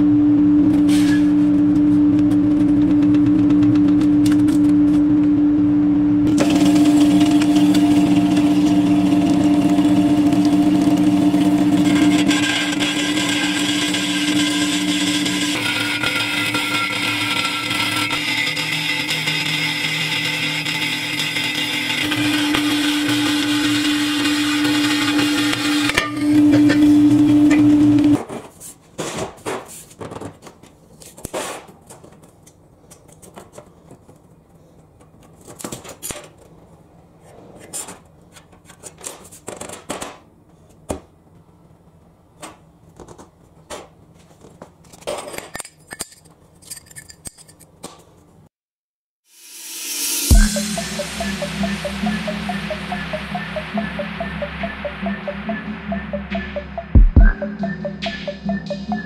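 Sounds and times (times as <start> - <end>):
band saw cutting steel: 6.3 - 28.2, 49.3 - 59.0.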